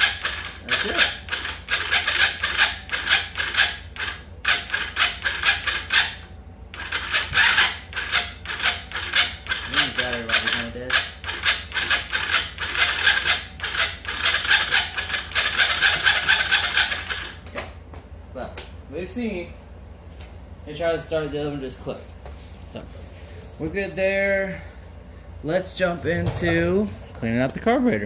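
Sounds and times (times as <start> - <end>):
electric starter cranking engine: 0.0 - 17.5.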